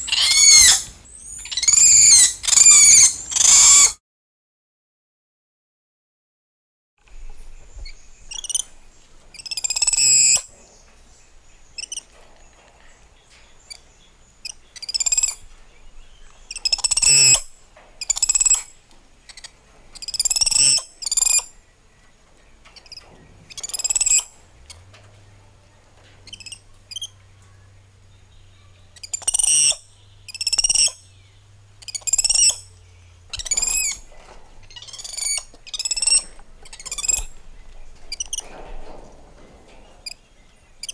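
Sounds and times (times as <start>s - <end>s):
monkeys squealing calls: 0.0s - 4.0s, 16.6s - 18.6s, 19.4s - 21.4s, 29.0s - 31.0s, 31.8s - 32.7s, 33.3s - 34.0s, 34.7s - 37.3s.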